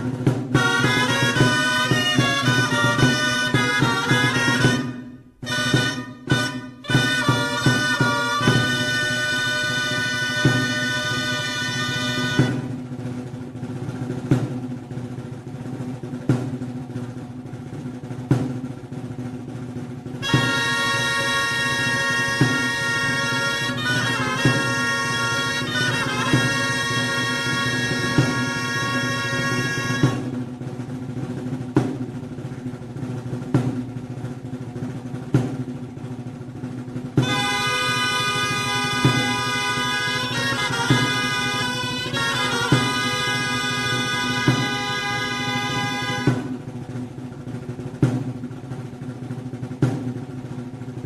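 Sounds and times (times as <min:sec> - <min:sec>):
reed pipes melody: 0:00.0 - 0:12.9, 0:20.2 - 0:30.6, 0:37.2 - 0:47.0
festival drumming: 0:00.0 - 0:51.0.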